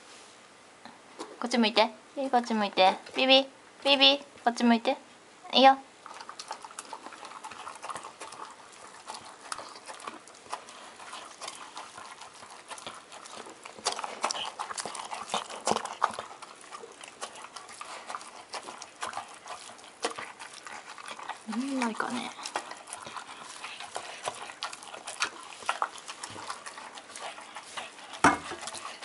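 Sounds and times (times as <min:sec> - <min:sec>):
dog chomping and licking food: 0:06.0 - 0:29.0.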